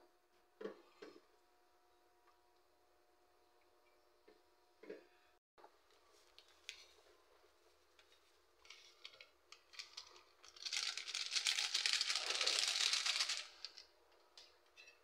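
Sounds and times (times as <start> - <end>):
plastic packet crinkling: 8.6 - 13.9.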